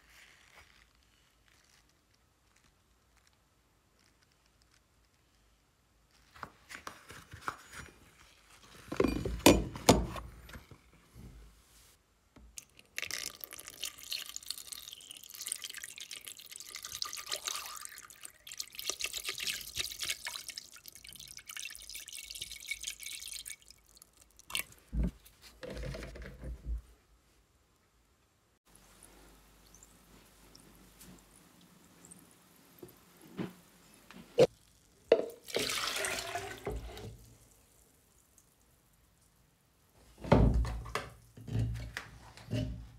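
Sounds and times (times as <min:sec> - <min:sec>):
liquid pouring and splashing: 0:12.6 - 0:25.1, 0:34.4 - 0:38.9.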